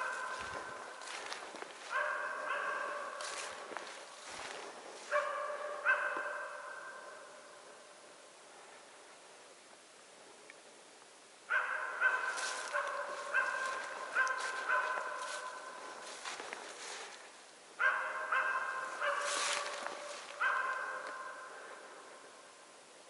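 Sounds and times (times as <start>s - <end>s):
dog barking: 0.0s - 7.3s, 11.5s - 16.4s, 17.8s - 21.6s.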